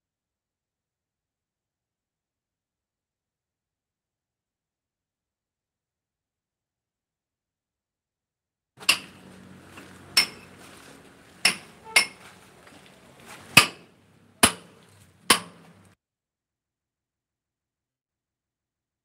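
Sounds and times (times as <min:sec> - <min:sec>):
hammer striking steel chisel: 0:08.8 - 0:16.0.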